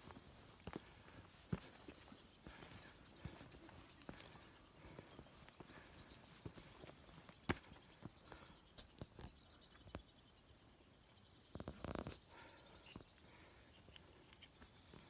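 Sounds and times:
footsteps on rock: 0.0 - 8.2.

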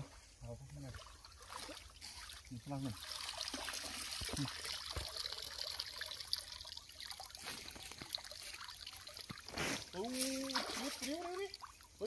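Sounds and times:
shallow water trickling: 0.0 - 12.0
small light splashes: 0.0 - 12.0.

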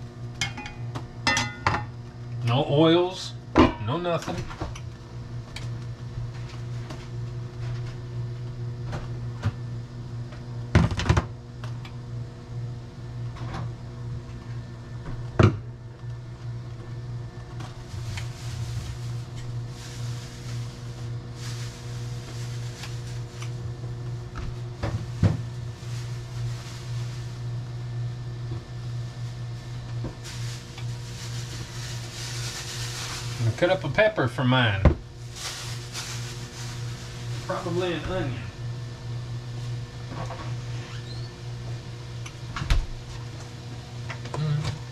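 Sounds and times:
low electrical hum: 0.0 - 44.9
refrigerator items being moved: 17.6 - 23.5, 24.6 - 27.5, 29.0 - 34.1, 34.7 - 38.4.

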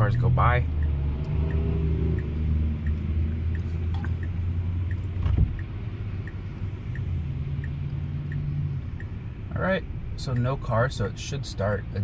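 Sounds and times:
passing cars on wet road: 0.0 - 9.7
turn signal ticking: 0.0 - 12.0.

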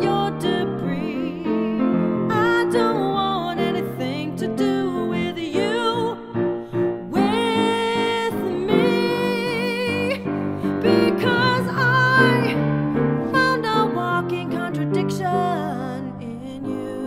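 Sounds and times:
woman singing with vibrato: 0.0 - 6.2, 7.1 - 12.6, 13.2 - 17.0
piano chords: 0.0 - 17.0.

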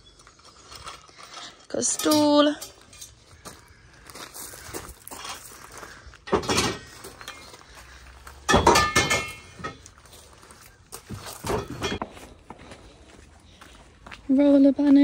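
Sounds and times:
metal poles clattering: 1.4 - 3.4, 6.2 - 12.3.

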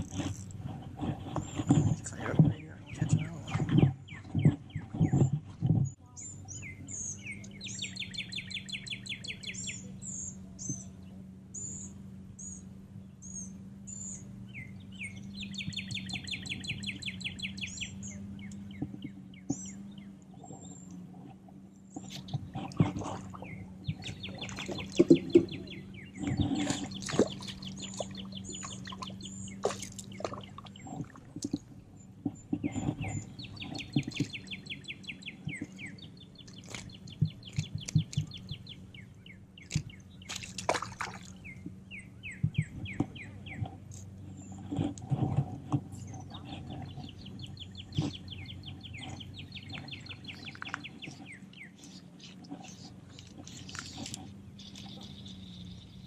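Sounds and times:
fishing rod clicks and rustles: 0.0 - 6.0, 18.5 - 34.5, 36.4 - 38.7, 42.6 - 55.8
songbirds trilling: 0.0 - 56.0.

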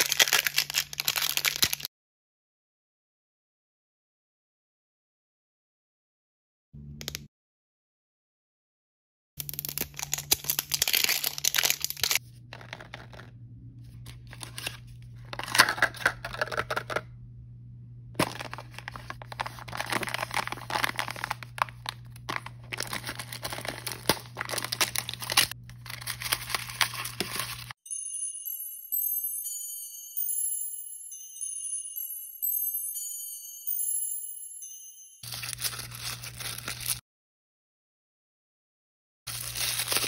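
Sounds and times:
plastic and paper packaging crinkling: 0.0 - 1.9, 9.6 - 13.3, 14.0 - 17.0, 18.2 - 27.8, 35.2 - 37.0, 39.3 - 40.0.

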